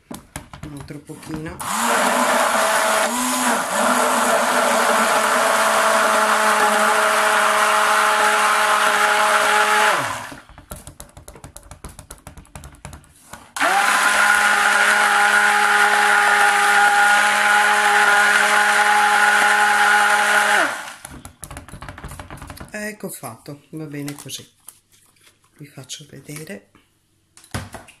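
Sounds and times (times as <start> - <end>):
stick blender motor whine: 1.6 - 10.5, 13.6 - 21.1.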